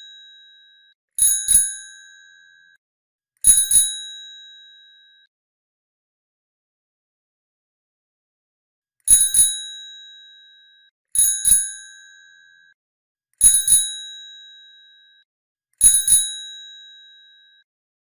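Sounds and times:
bicycle bell ringing: 0:00.0 - 0:02.7, 0:03.5 - 0:05.0, 0:09.1 - 0:12.7, 0:13.4 - 0:15.2, 0:15.8 - 0:17.4.

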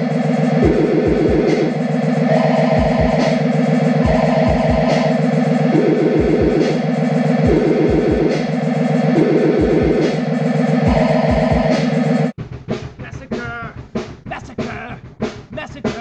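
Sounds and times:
repeating synth riff: 0:00.0 - 0:12.4
steady kick-drum beat: 0:00.0 - 0:16.0.

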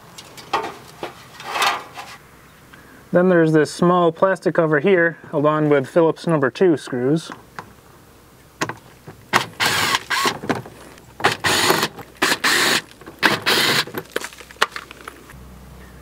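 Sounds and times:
cordless power driver running: 0:09.3 - 0:10.6, 0:11.2 - 0:14.0.

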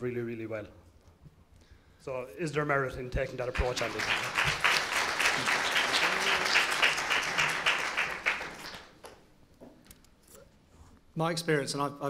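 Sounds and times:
audience applauding: 0:03.4 - 0:09.2.

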